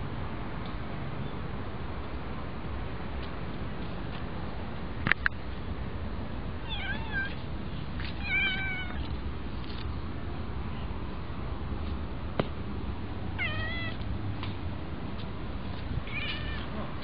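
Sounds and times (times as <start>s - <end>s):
kitten meowing: 6.7s - 7.4s, 8.2s - 9.0s, 13.4s - 14.0s, 16.1s - 16.7s.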